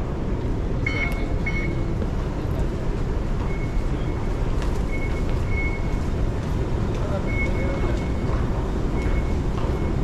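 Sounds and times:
low station rumble: 0.0 - 10.0
short high-pitched beeps: 0.9 - 1.9, 4.9 - 6.0.

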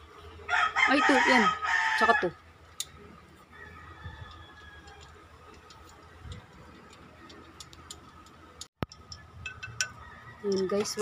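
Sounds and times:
hands clicking on metal housing: 4.2 - 11.0.

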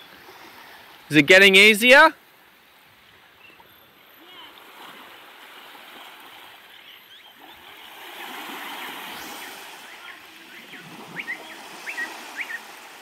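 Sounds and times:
gentle waves washing on shore: 4.2 - 13.0
bird chirping short rising notes: 6.8 - 12.8.

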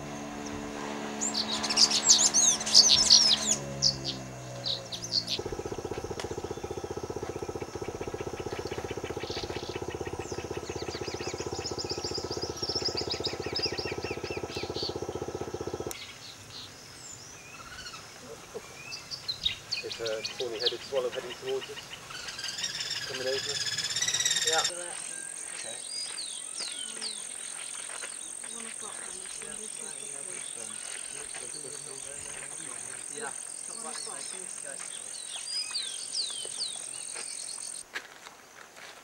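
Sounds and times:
steady low hum: 0.0 - 16.0
wild birds calling and chirping: 0.0 - 37.8.

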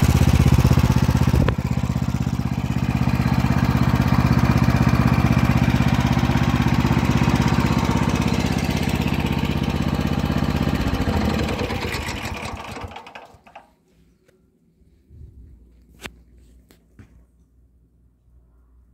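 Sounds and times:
tractor engine idling: 0.0 - 13.7.

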